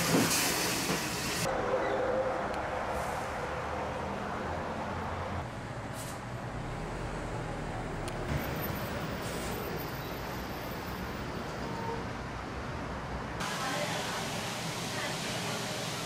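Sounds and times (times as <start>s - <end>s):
passing vehicles rumble: 1.4s - 13.4s.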